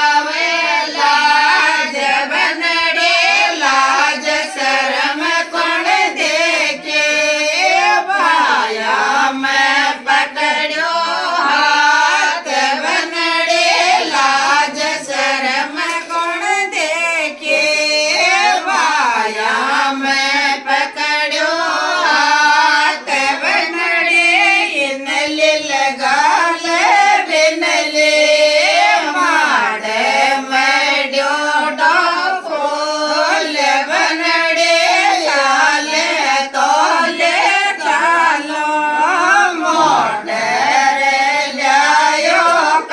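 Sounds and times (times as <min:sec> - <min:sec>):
women singing folk song: 0:00.0 - 0:42.9.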